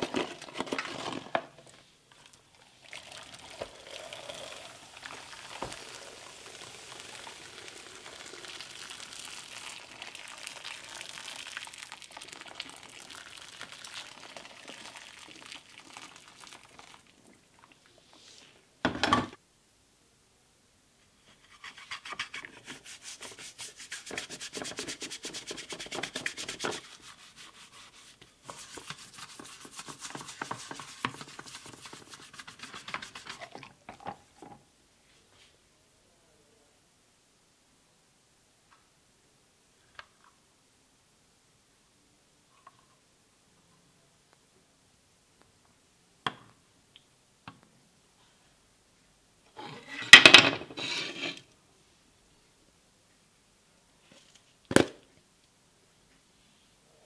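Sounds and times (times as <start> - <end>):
water pouring into steel tray: 2.8 - 17.1
brush scrubbing wet plastic: 21.5 - 33.6.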